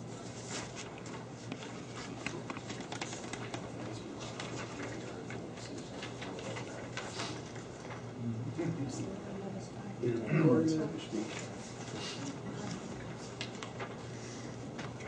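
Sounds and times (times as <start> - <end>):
steady low hum: 0.0 - 15.0
paper rustling: 0.2 - 8.1, 11.2 - 15.0.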